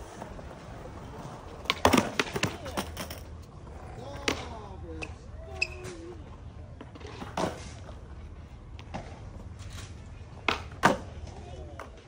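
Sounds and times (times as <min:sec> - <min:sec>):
skateboard wheels knocking on concrete: 0:00.0 - 0:03.2, 0:10.4 - 0:12.0.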